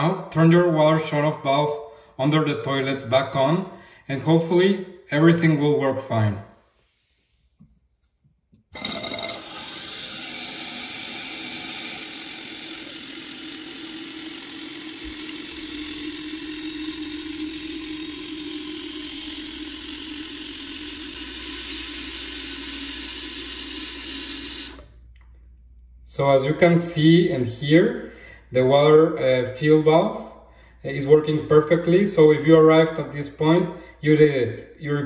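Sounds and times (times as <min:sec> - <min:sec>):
toilet tank filling with water: 0:08.7 - 0:25.0.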